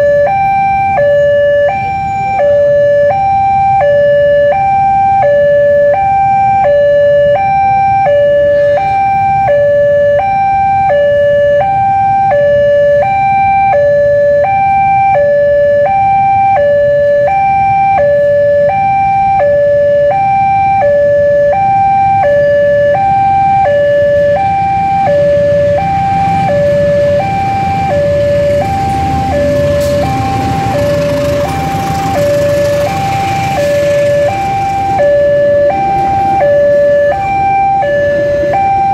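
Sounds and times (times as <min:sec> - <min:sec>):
level crossing two-note alarm: 0:00.0 - 0:38.9
passenger train rumbling: 0:24.2 - 0:36.8.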